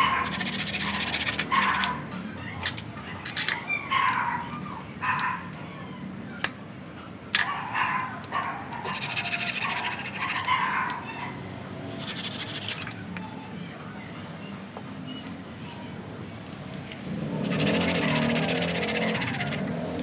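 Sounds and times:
hand tool rasping on wood: 0.0s - 1.6s, 11.9s - 12.8s, 17.4s - 19.6s.

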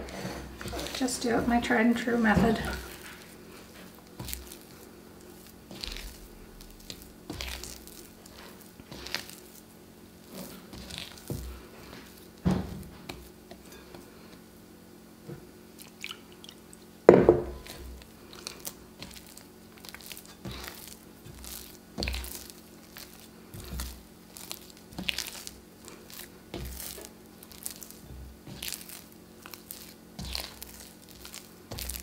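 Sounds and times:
dough squishing: 0.0s - 32.0s
dough slapping: 2.2s - 14.0s, 18.6s - 32.0s.

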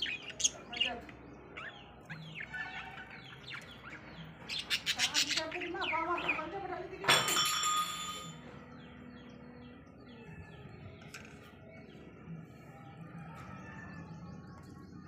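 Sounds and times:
budgerigars chirping: 0.0s - 6.4s.

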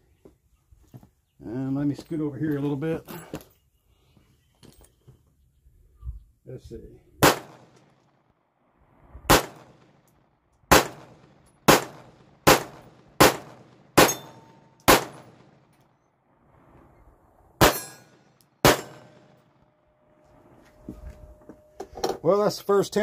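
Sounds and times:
pistol shots: 7.2s - 7.9s, 9.3s - 9.8s, 10.7s - 15.6s, 17.6s - 19.4s.

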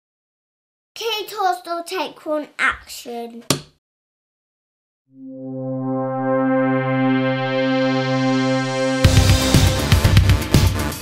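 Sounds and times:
held synthesizer note: 5.1s - 9.6s
electronic beat: 8.8s - 11.0s.

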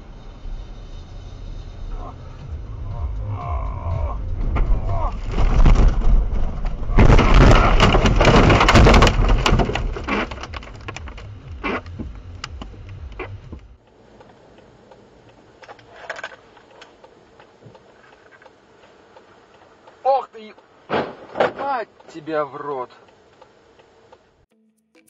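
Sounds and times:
car rushing rumble: 0.0s - 19.1s
snow pelting car body: 4.4s - 12.3s, 20.8s - 21.8s.

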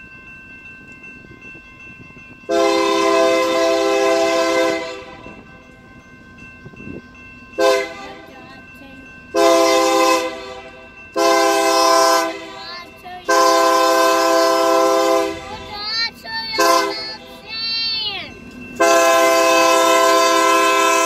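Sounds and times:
locomotive air horn blasts: 2.5s - 5.4s, 7.6s - 8.2s, 9.4s - 12.6s, 13.3s - 15.7s, 16.6s - 17.5s, 18.8s - 21.0s.

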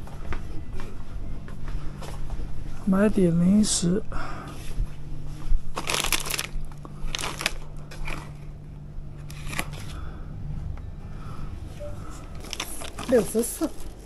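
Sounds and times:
steady low hum: 0.0s - 14.0s
plastic snack packets crinkling: 5.8s - 8.3s, 12.4s - 14.0s.

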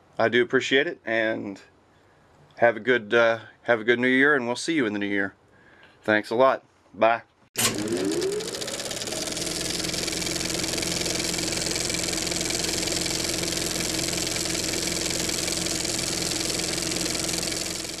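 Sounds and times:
engine idling: 7.6s - 18.0s.

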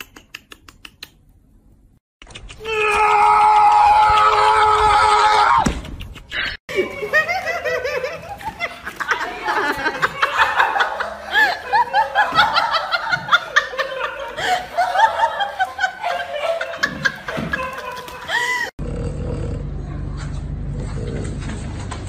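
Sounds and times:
high-pitched laughter: 6.1s - 18.7s.

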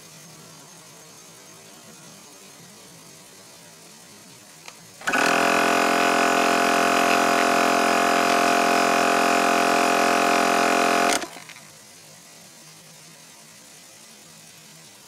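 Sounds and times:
air compressor electric hum: 5.0s - 11.5s.

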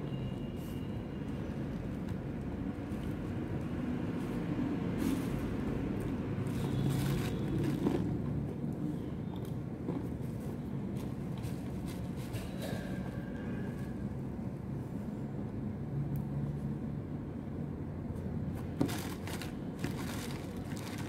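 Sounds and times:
banana peel rustling: 18.4s - 21.0s.

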